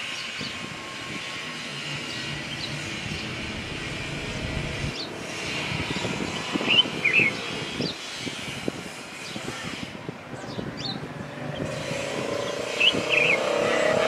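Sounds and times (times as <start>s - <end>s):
steady low hum: 2.0s - 6.0s.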